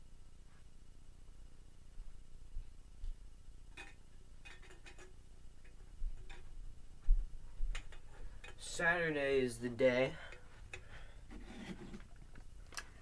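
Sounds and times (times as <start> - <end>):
footsteps in a room: 5.7 - 8.7.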